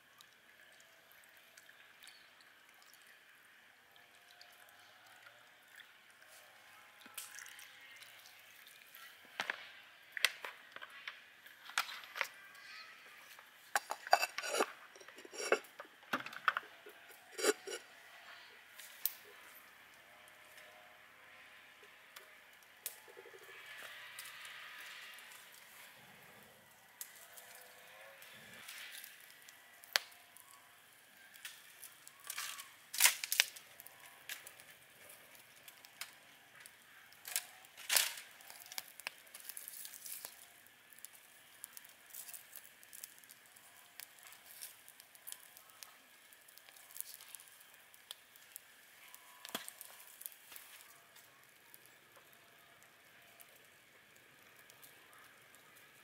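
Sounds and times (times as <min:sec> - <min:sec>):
crackling and rustling: 0:13.1 - 0:19.6, 0:31.4 - 0:52.4.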